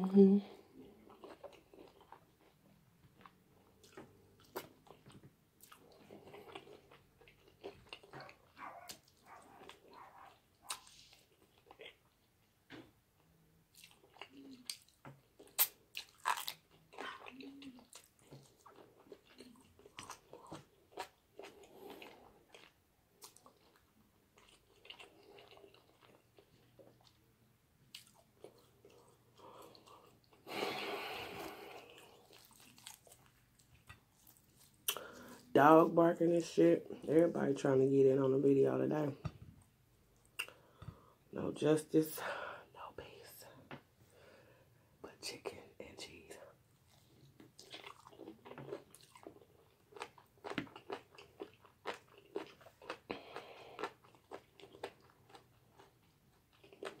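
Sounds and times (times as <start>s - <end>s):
open-mouth chewing and lip smacking: 0.7s - 27.2s, 27.9s - 30.5s, 31.4s - 35.4s, 39.6s - 41.0s, 46.8s - 57.0s.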